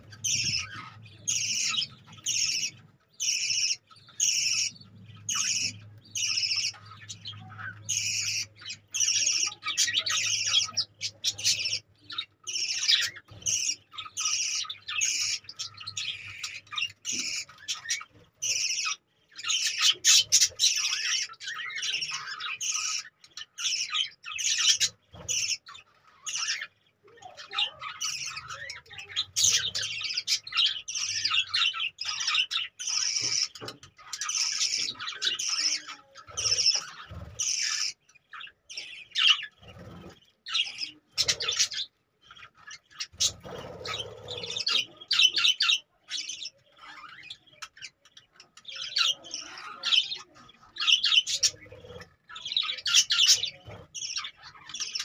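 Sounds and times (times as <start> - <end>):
budgerigars chirping and squawking: 0.0 - 55.0.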